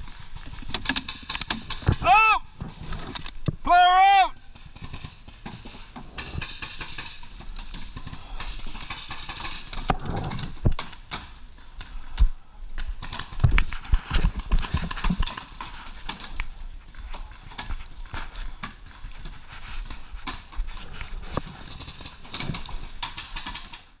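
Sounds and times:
footsteps: 0:04.3 - 0:23.2.

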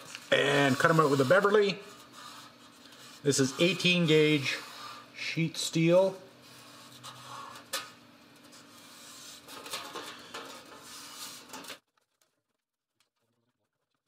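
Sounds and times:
marker scratching on sheet steel: 0:00.0 - 0:05.0, 0:06.4 - 0:10.0, 0:10.6 - 0:11.7.

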